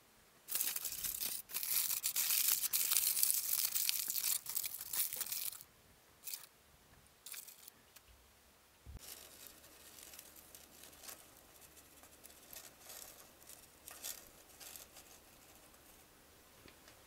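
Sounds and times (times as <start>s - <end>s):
aluminium foil crinkling: 0.5s - 5.6s, 6.2s - 6.5s, 7.3s - 7.7s, 9.0s - 16.0s.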